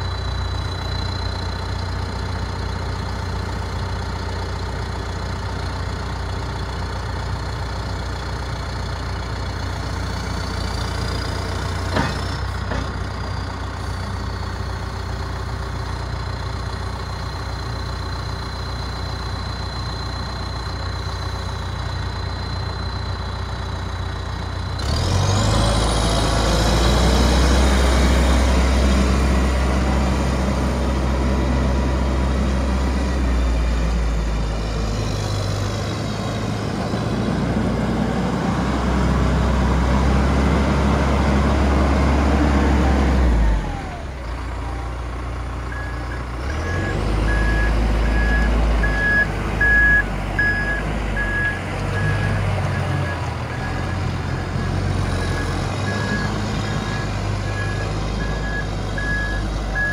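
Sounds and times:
reversing alarm beeping: 0:00.0 - 0:02.6, 0:15.9 - 0:27.4, 0:45.7 - 0:59.9
diesel engine revving: 0:00.0 - 0:59.9.

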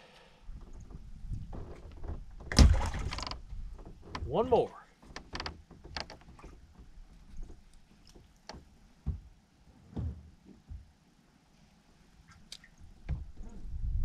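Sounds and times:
soft knocks and thumps on deck: 0:05.7 - 0:09.3, 0:09.9 - 0:10.9.

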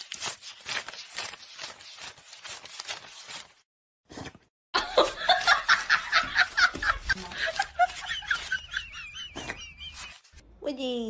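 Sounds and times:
person laughing hard: 0:04.8 - 0:10.2.

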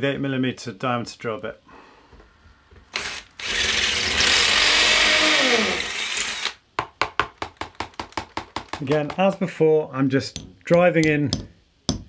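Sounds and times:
drill boring into brick: 0:02.9 - 0:06.6.

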